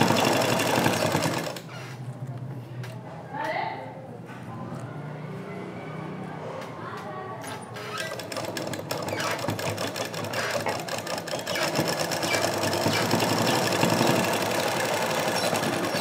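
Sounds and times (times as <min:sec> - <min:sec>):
sewing machine running: 0:00.0 - 0:01.7, 0:08.0 - 0:16.0.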